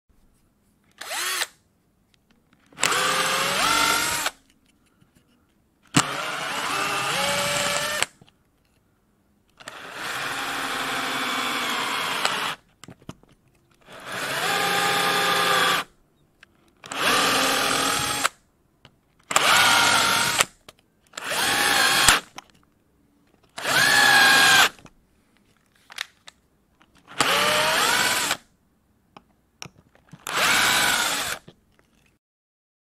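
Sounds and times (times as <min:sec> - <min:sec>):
power drill motor whine: 0:01.0 - 0:01.5, 0:02.8 - 0:04.4, 0:06.0 - 0:08.1, 0:09.6 - 0:12.6, 0:14.0 - 0:15.9, 0:16.9 - 0:18.3, 0:19.3 - 0:20.4, 0:21.2 - 0:22.2, 0:23.6 - 0:24.7, 0:27.1 - 0:28.4, 0:30.2 - 0:31.4.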